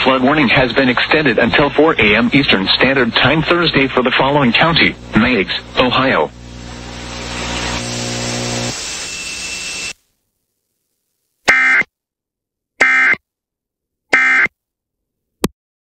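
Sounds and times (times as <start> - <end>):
buzzing hum with hiss: 0.0 - 11.9
screeching data tone bursts: 7.4 - 10.0, 14.1 - 14.5.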